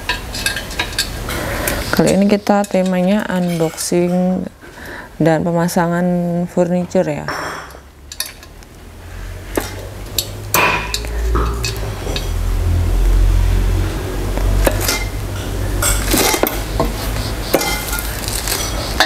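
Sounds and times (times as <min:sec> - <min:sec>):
metal tubes clinking: 0:00.0 - 0:04.3, 0:07.6 - 0:08.6, 0:09.5 - 0:12.4, 0:14.6 - 0:19.0
low rumble: 0:11.0 - 0:15.8.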